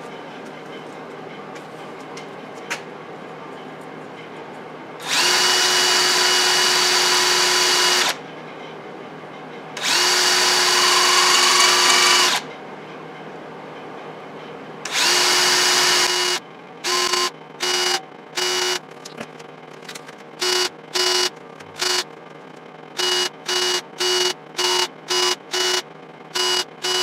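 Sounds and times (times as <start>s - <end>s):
electric drill whining: 5.0s - 8.2s, 9.8s - 12.4s, 14.9s - 18.8s.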